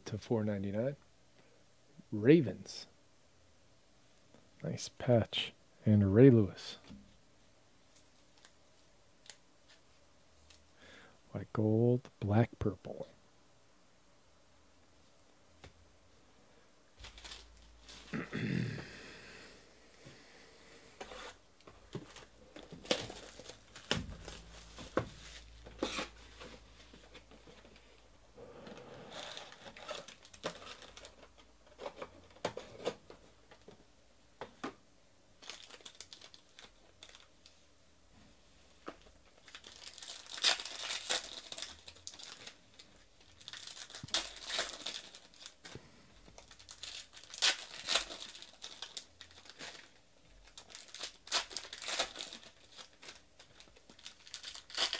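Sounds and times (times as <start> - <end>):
foil wrappers crinkling and tearing: 17.0 - 18.2, 21.1 - 27.7, 29.1 - 32.0, 35.4 - 37.3, 39.0 - 54.9
card packs clicking and rustling: 21.0 - 27.8, 29.1 - 33.7, 35.4 - 37.3, 38.8 - 54.9.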